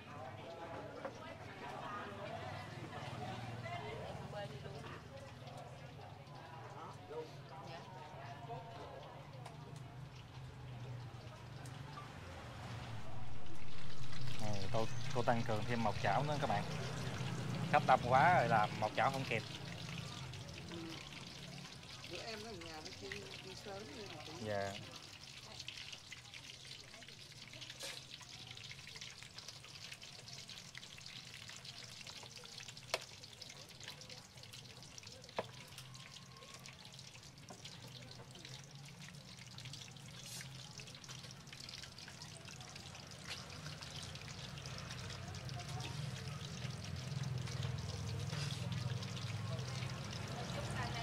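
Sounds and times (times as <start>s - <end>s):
eggs deep-frying in oil: 0.0s - 51.0s
low hum: 12.8s - 15.7s.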